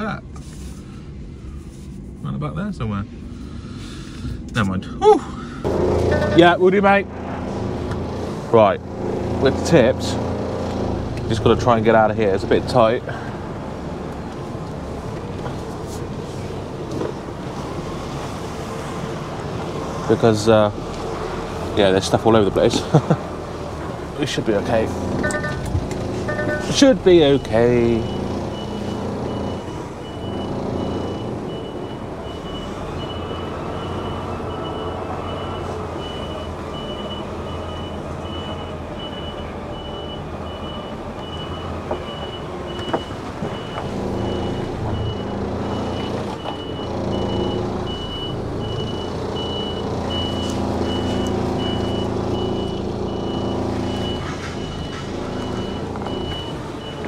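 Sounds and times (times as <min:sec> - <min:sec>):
diesel engine running at low revs: 0:05.4 - 0:57.0
reversing alarm beeping: 0:25.2 - 0:57.0.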